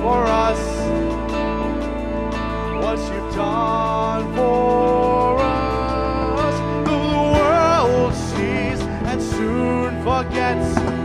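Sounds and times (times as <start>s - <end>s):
bass guitar: 0.0s - 11.0s
electric guitar: 0.0s - 11.0s
keyboard chords: 0.0s - 11.0s.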